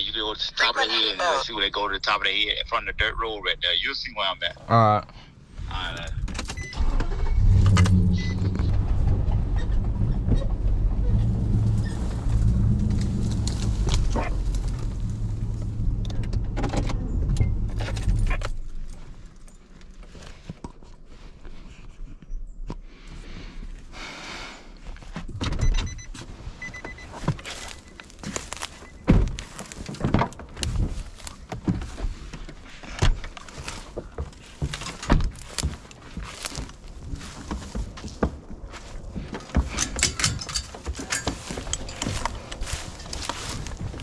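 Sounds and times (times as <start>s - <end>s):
car door opening: 6.0s - 18.7s, 25.3s - 36.6s
thunks: 6.1s - 18.9s, 25.1s - 44.0s
footsteps on grass and dirt: 26.1s - 44.0s
keys jangling: 39.7s - 43.7s.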